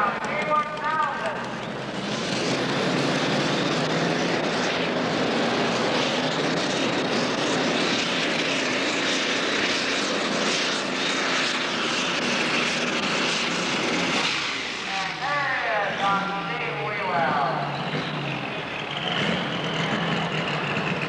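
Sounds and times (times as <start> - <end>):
tractor engine running flat out: 0.0 - 21.0
high whine: 13.1 - 20.9.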